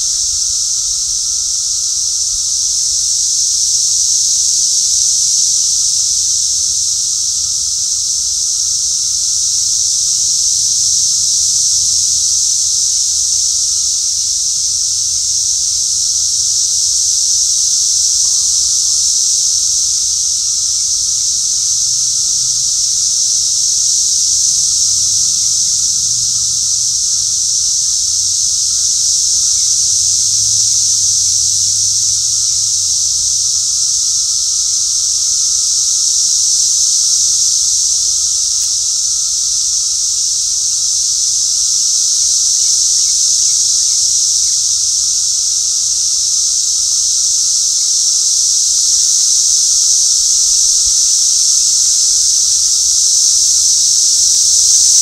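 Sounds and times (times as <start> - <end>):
cicadas droning: 0.0 - 55.0.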